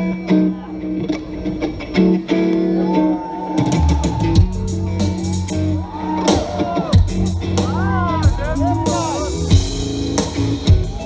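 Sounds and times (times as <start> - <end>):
bass guitar: 0.0 - 11.0
drum kit with cymbal hits: 3.5 - 11.0.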